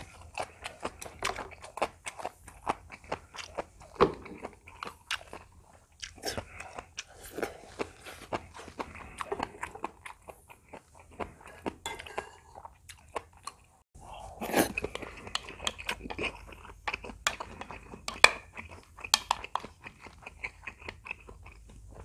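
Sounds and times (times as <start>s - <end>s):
chewing and crunching: 0.0s - 22.0s
spoon and chopsticks clicking bowls: 18.1s - 19.7s.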